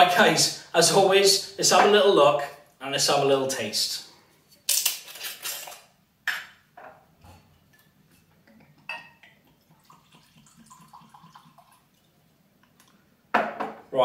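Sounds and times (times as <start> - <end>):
glass clinking: 8.8 - 10.0
liquid pouring into glass: 8.8 - 12.9.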